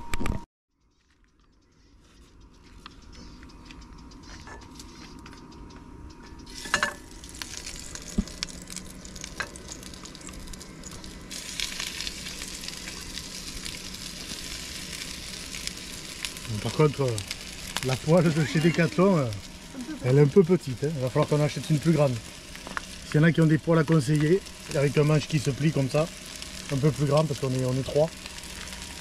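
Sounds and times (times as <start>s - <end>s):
chicken sizzling in hot oil: 6.4s - 29.0s.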